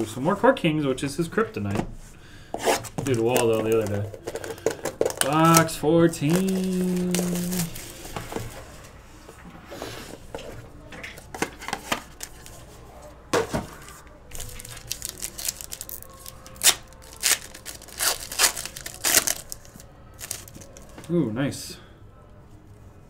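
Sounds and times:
plastic wrapper tearing: 0:02.9 - 0:08.1, 0:14.3 - 0:21.1
plastic wrapper crinkling: 0:02.9 - 0:08.2, 0:14.3 - 0:21.1.

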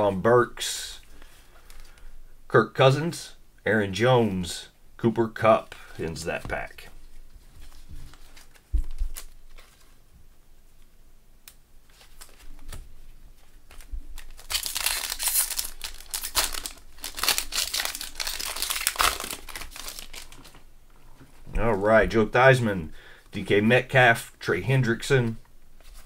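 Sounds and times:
foil wrapper crinkling and tearing: 0:13.7 - 0:20.6.

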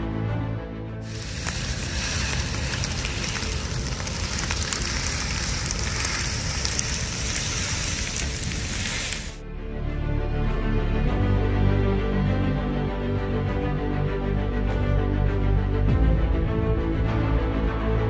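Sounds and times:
fire crackling and popping: 0:01.0 - 0:09.4
fire rushing: 0:01.0 - 0:09.4.

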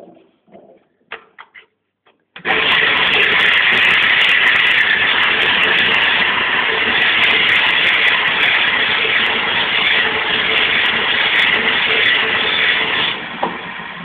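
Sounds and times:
lathe motor hum: 0:02.4 - 0:14.0
sandpaper hissing on spinning wood: 0:02.5 - 0:13.3.

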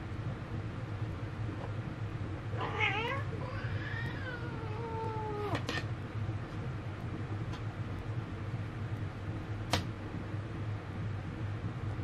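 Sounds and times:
cat meowing: 0:02.6 - 0:05.6.

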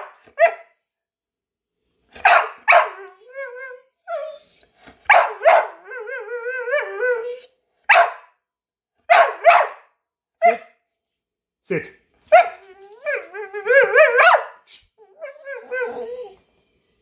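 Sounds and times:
dog barking: 0:00.0 - 0:00.7, 0:02.2 - 0:03.1, 0:05.1 - 0:05.8, 0:07.9 - 0:08.4, 0:09.1 - 0:10.7, 0:12.3 - 0:12.6, 0:14.0 - 0:14.7
dog whining: 0:02.7 - 0:07.6, 0:12.3 - 0:14.4, 0:15.0 - 0:16.6.

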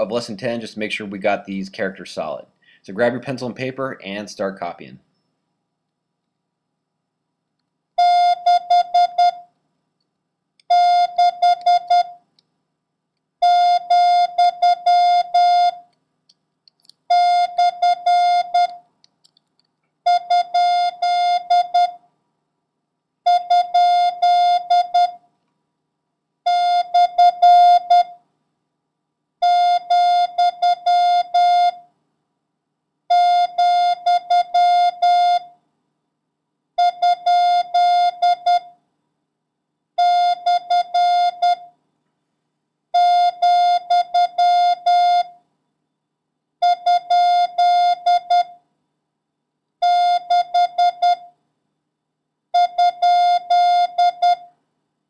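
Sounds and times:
morse code beeps: 0:08.0 - 0:09.4, 0:10.7 - 0:12.2, 0:52.6 - 0:54.4.

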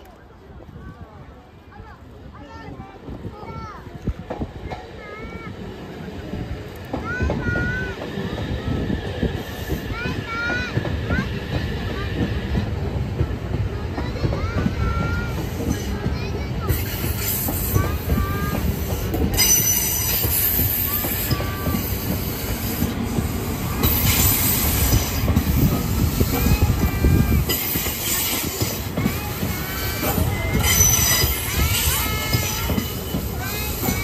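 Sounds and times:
low rumble of wheels on rail: 0:00.0 - 0:34.0
train wheels squealing: 0:16.6 - 0:34.0.

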